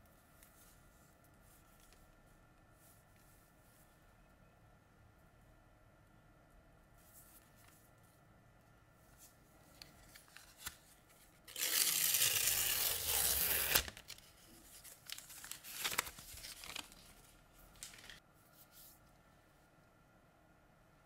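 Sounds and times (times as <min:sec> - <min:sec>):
paper rustling and crinkling: 0:09.2 - 0:18.2
paper wrap tearing: 0:11.5 - 0:14.2, 0:14.9 - 0:17.1, 0:17.8 - 0:18.2.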